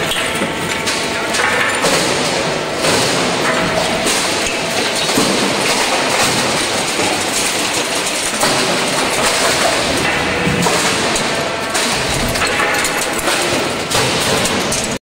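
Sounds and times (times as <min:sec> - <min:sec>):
crushed scrap metal clattering: 0:00.0 - 0:15.0.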